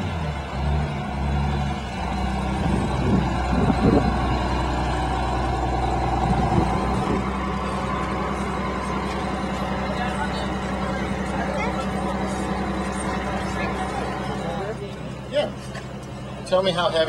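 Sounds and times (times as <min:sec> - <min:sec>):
bus engine droning: 0:00.0 - 0:17.0.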